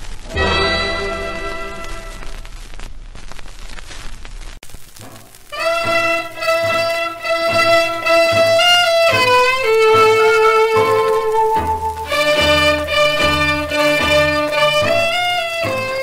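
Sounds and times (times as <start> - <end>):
trot song instrumental ending: 0.3 - 2.3, 5.0 - 16.0
stepping melody over steady beat: 0.4 - 2.2, 5.1 - 16.0.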